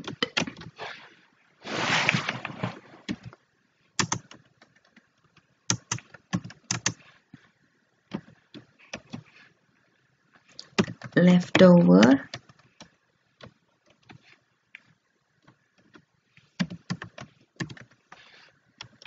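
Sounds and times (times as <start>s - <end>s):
keyboard keystroke clicks: 4.0s - 4.4s.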